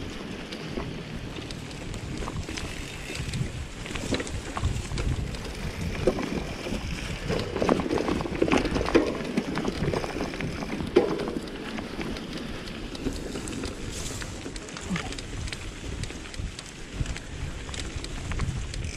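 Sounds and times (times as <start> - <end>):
wind on microphone: 0.0 - 11.5, 13.0 - 18.9
bike rattling and knocking: 0.0 - 18.9
tyre rumble on dirt: 0.6 - 15.6.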